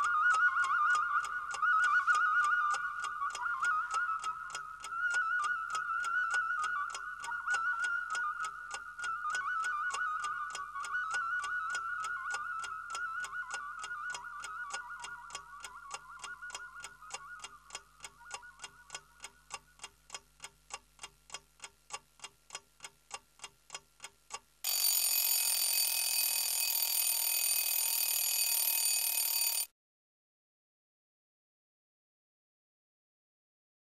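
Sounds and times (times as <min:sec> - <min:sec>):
clock ticking: 0:17.4 - 0:29.7
alarm bell ringing: 0:24.6 - 0:29.7.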